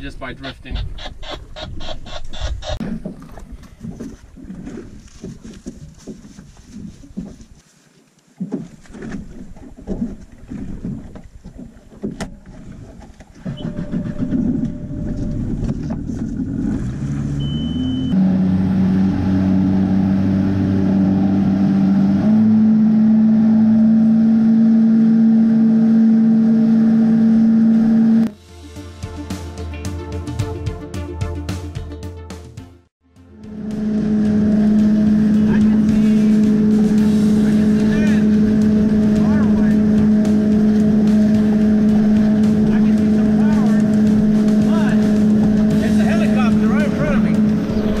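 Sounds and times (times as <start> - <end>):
water noise: 0.0 - 28.4, 33.3 - 48.0
wind: 0.0 - 28.6, 33.3 - 48.0
boat engine speeding up: 9.0 - 28.4, 33.2 - 48.0.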